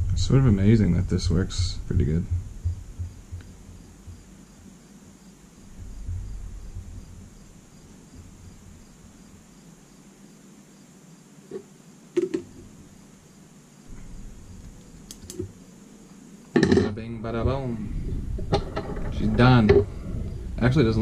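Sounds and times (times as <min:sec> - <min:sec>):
faint high hiss: 0:00.0 - 0:21.0
small clicks of tools: 0:15.1 - 0:15.5.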